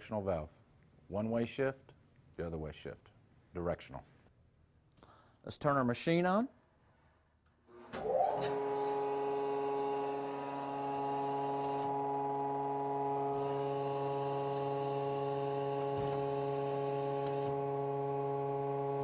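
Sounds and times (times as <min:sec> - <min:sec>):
machine whine and hum: 0:07.8 - 0:19.0.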